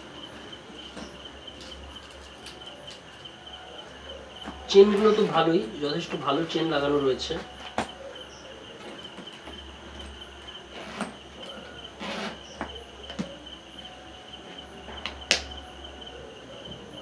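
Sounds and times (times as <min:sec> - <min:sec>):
bag rustling: 0:08.8 - 0:12.6.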